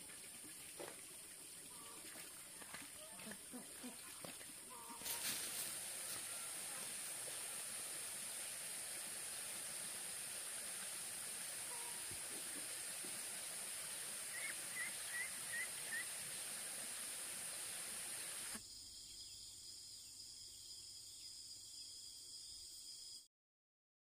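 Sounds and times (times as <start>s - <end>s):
quieter insect hum: 0.0s - 23.3s
high insect drone: 4.7s - 23.3s.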